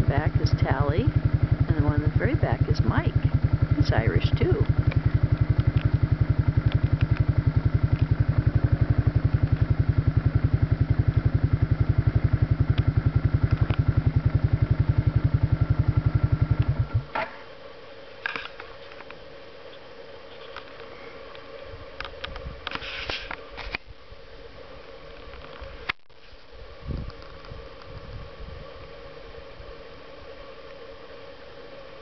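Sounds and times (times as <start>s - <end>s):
engine idling: 0.0s - 17.2s.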